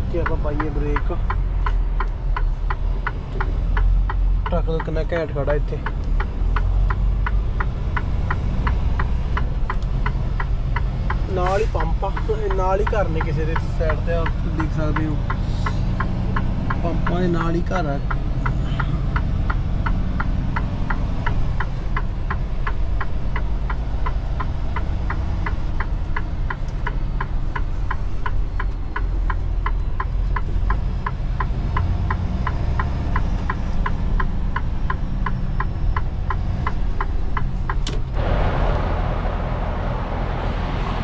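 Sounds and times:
turn-signal flasher ticking: 0:00.0 - 0:38.2
diesel engine rumble: 0:00.0 - 0:41.0.

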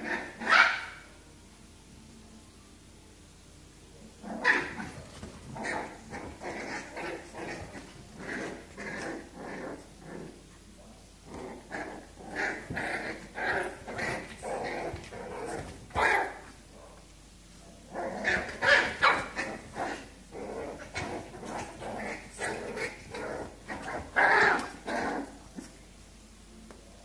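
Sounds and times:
puppy barks: 0:00.0 - 0:01.1, 0:15.5 - 0:17.0, 0:18.2 - 0:20.0
puppies growling and yapping: 0:04.2 - 0:10.5, 0:11.2 - 0:16.6, 0:17.9 - 0:25.8.

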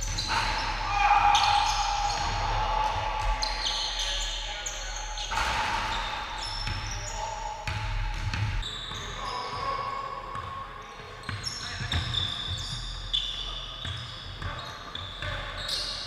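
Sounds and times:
sneakers squeaking on gym floor: 0:00.0 - 0:16.0
basketball bouncing: 0:05.3 - 0:08.6.

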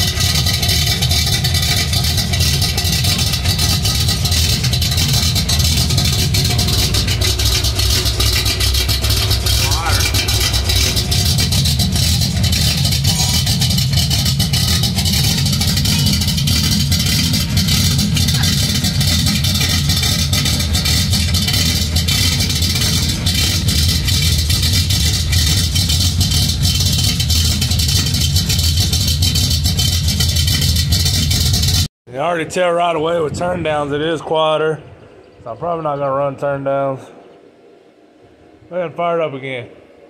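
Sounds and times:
vee-eight engine idling: 0:00.0 - 0:31.9.

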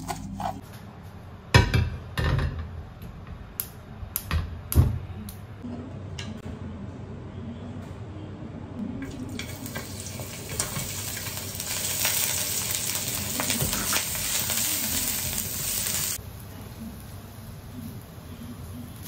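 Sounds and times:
garlic sizzling in hot oil: 0:09.0 - 0:16.5.

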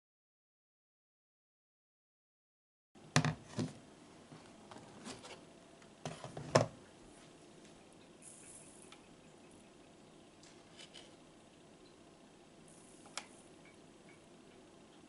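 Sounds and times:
sugar pouring hiss: 0:08.1 - 0:11.2, 0:12.6 - 0:13.7.

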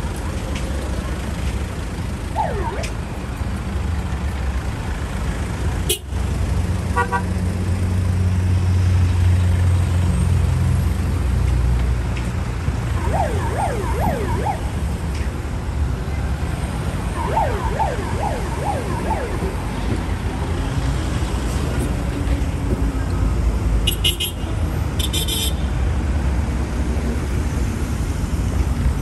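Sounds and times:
vehicle rumble and road noise: 0:00.0 - 0:29.0
siren yelping: 0:02.4 - 0:03.0, 0:12.9 - 0:15.0, 0:17.0 - 0:20.0.

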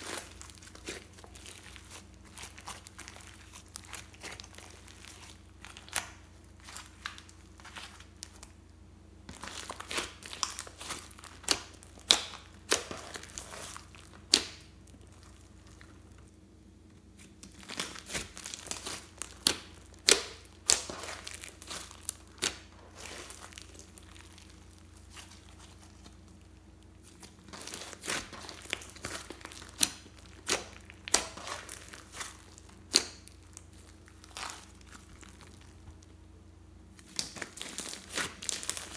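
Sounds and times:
slime squeezed with sticky crackling: 0:00.0 - 0:08.6, 0:09.2 - 0:16.2, 0:17.0 - 0:36.2, 0:36.9 - 0:38.9.

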